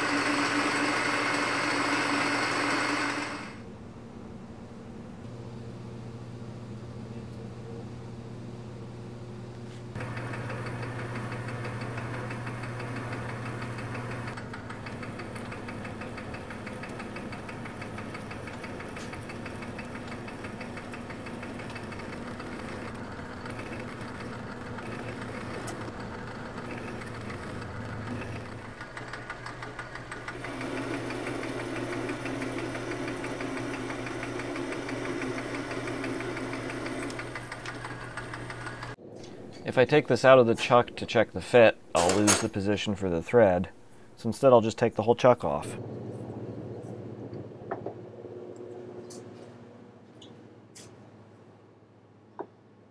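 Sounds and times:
lathe tool cutting metal: 0.0 - 3.6, 10.0 - 39.0
metal lathe motor hum: 0.0 - 3.6, 10.0 - 39.0.

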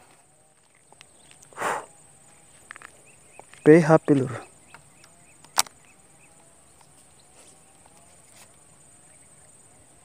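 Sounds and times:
short faint calls: 1.2 - 10.0
faint ticks: 2.3 - 6.0
sharp click: 4.7 - 5.8.

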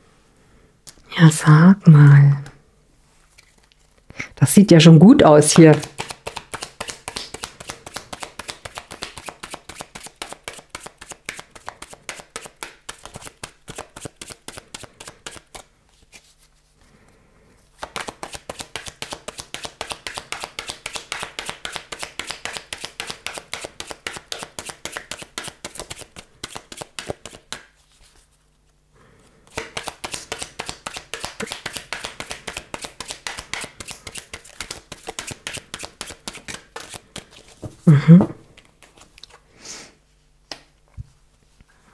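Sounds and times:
cards being shuffled: 3.3 - 4.1, 5.4 - 16.6, 17.7 - 28.8, 29.5 - 37.7, 38.6 - 39.4.

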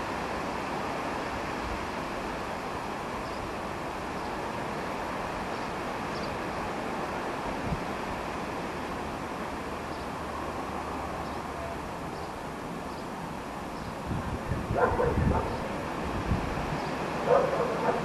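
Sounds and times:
dog barking: 14.7 - 15.7, 17.2 - 18.0.

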